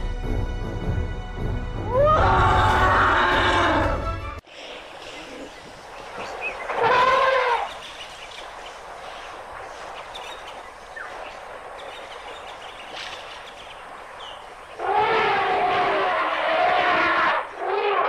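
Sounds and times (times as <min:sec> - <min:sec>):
elephant trumpeting: 0:01.9 - 0:04.1, 0:06.7 - 0:07.8, 0:14.8 - 0:18.0
quiet outdoor ambience: 0:01.9 - 0:18.0.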